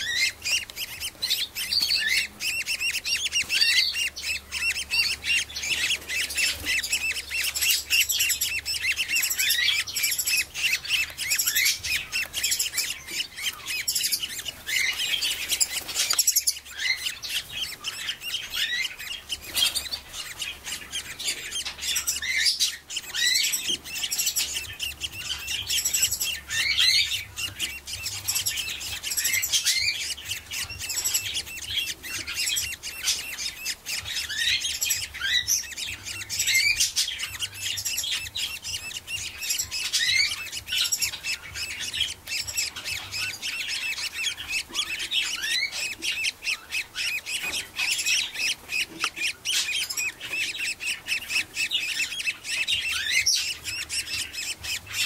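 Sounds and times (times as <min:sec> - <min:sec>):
budgerigars chirping: 0:00.0 - 0:55.0.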